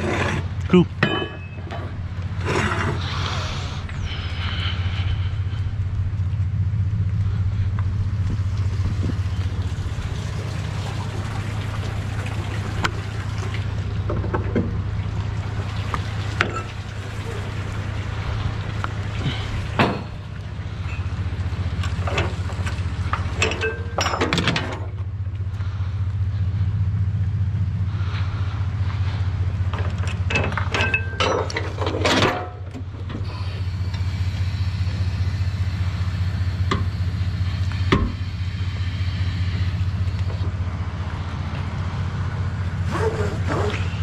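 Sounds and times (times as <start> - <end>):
clunks and rattles: 0.0 - 3.1, 12.8 - 17.0, 18.7 - 25.5, 28.9 - 34.1, 36.6 - 38.4
truck engine droning: 0.0 - 44.0.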